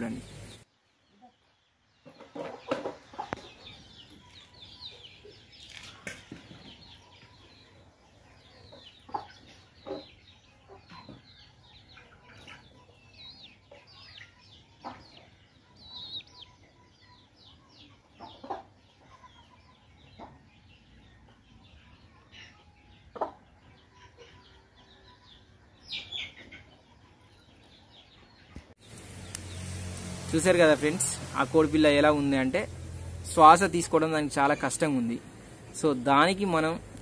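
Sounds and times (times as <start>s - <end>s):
chickens clucking: 0.0s - 29.6s
chicks peeping: 0.0s - 37.0s.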